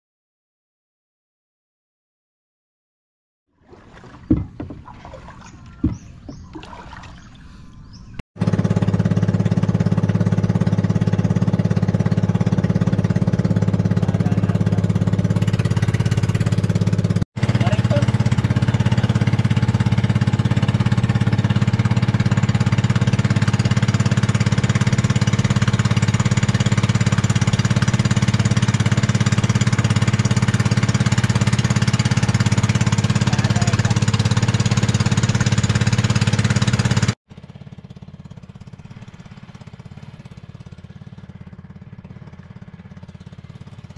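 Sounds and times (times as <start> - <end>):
boat engine chugging: 3.6 - 43.9
quiet knocks: 3.9 - 6.5.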